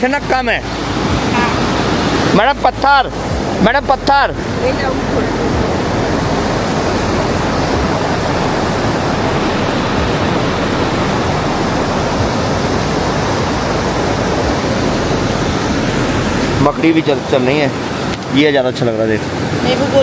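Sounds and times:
river rushing over rocks: 0.0 - 20.0.

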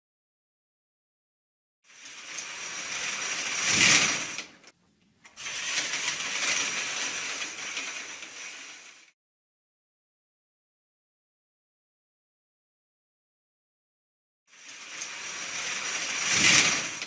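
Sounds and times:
stage curtains sliding on rail: 1.9 - 9.2, 14.5 - 17.0.

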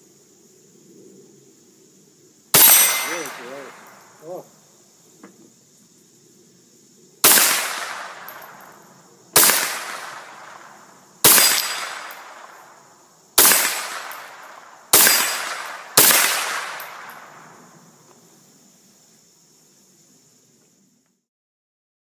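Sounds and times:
gunshots with rolling echo: 2.5 - 4.2, 7.2 - 17.9.

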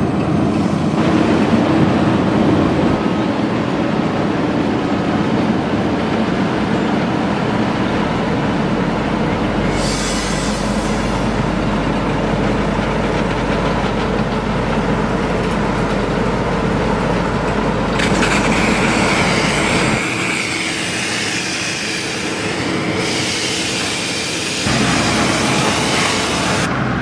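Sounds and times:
paver engine drone: 0.0 - 27.0
mechanical rattle and clatter: 17.4 - 21.9
high hiss: 18.6 - 26.7.

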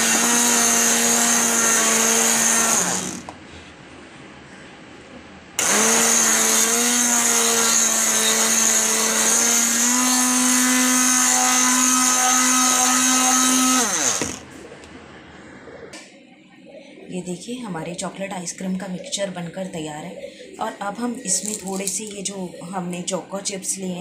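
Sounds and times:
electric mixer whining: 0.0 - 3.3, 5.6 - 14.5
mixer beater whipping liquid: 0.0 - 3.3, 5.6 - 14.5.

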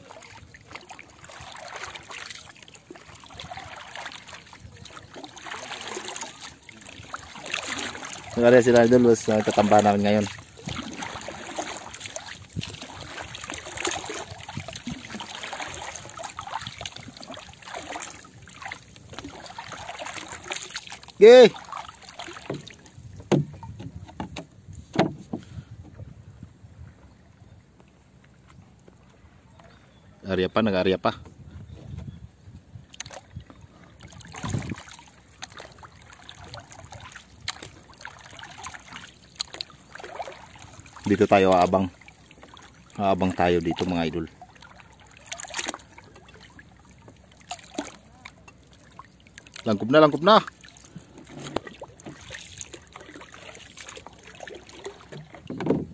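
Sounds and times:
small water splashes: 0.0 - 25.7, 27.8 - 31.3, 32.7 - 55.9
water lapping against boat hull: 0.0 - 55.9
dull thump: 22.5 - 26.0, 55.3 - 55.9.

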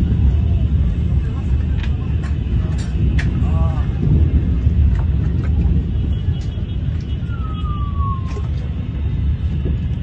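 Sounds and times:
wind buffeting microphone: 0.0 - 10.0
falling whistle-like tone: 7.3 - 8.4.

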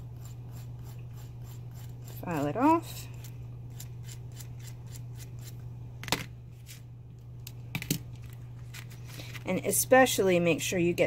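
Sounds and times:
file rasping on copper wire: 0.0 - 5.5
steady low hum: 0.0 - 11.0.

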